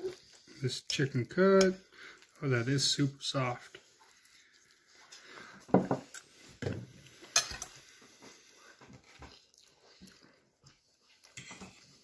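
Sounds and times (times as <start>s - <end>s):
person chewing chicken: 3.8s - 12.0s.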